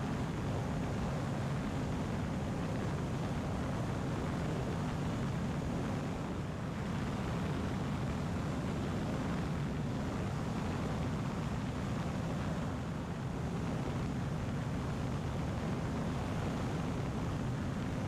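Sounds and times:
light aircraft engine drone: 0.0 - 18.0.

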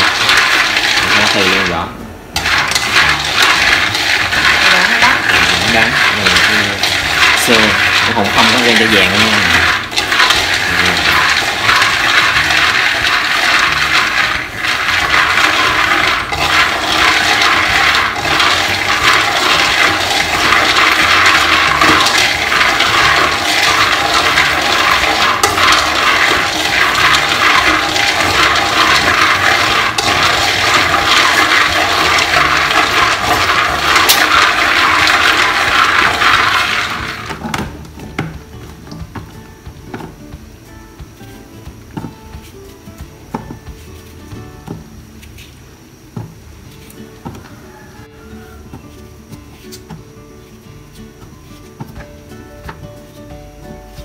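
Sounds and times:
nuts rattling in a metal wok: 0.0 - 39.2.

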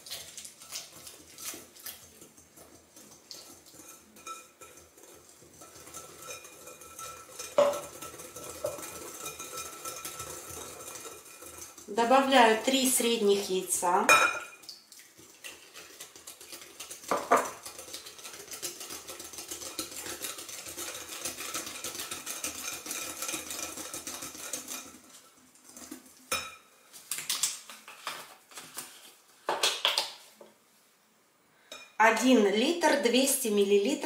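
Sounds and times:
whisk clinking in glass bowl: 2.7 - 13.0, 15.5 - 25.1.

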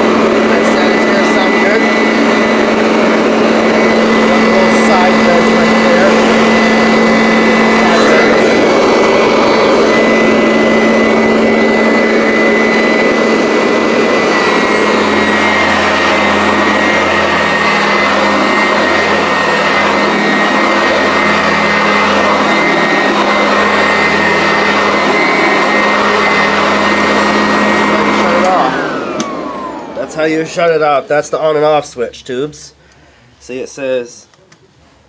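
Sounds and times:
vacuum cleaner running: 0.0 - 34.2.

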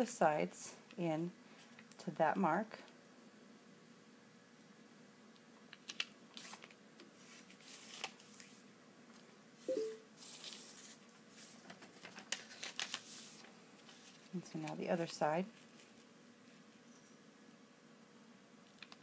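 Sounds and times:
paper swishes and rustles: 6.4 - 8.6, 10.2 - 14.3.

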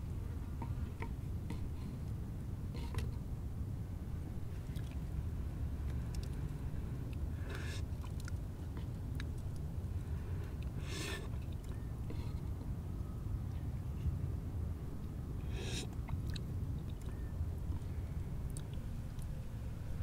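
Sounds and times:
steady low rumble: 0.0 - 20.0
sipping tea: 15.4 - 17.2.

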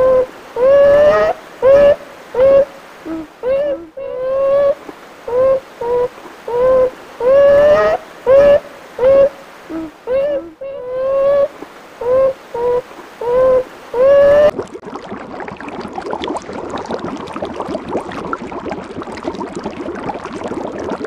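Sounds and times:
short pitched animal calls: 0.0 - 14.5.

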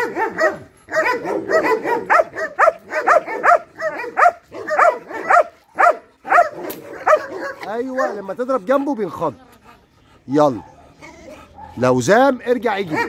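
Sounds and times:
dog barking rapidly: 0.0 - 8.4, 12.8 - 13.0.

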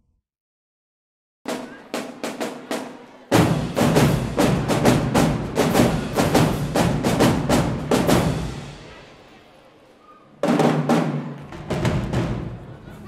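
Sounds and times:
marching drumline drumming: 1.5 - 8.9, 10.4 - 12.8
loud drum strikes: 1.5 - 9.1, 10.4 - 12.7.

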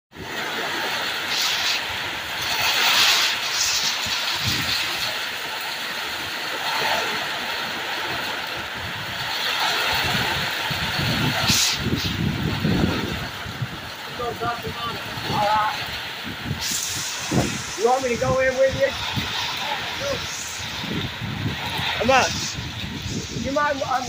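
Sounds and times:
heavy rain pouring: 0.1 - 24.0
low thunder rumbling: 8.6 - 24.0.

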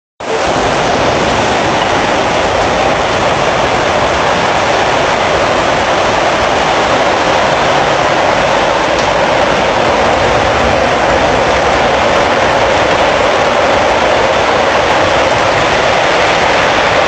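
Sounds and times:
floodwater rushing down street: 0.2 - 17.0.

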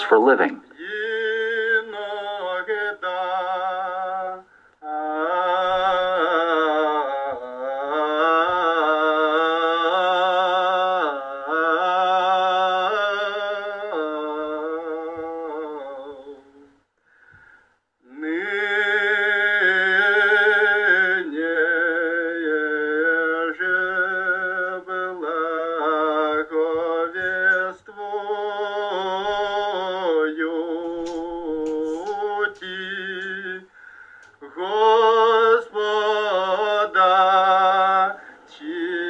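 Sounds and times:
choir singing slow chant: 0.8 - 16.6, 34.4 - 39.0.

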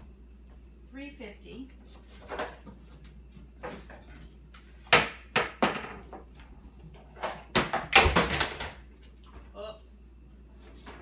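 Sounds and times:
kitchen knocks and clatter: 4.9 - 8.9.

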